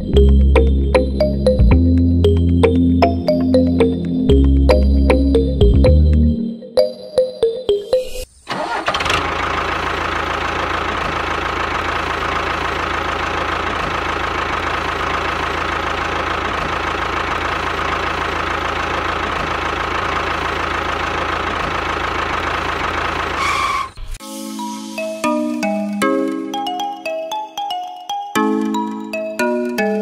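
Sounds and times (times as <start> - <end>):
small engine chugging: 8.5 - 24.2.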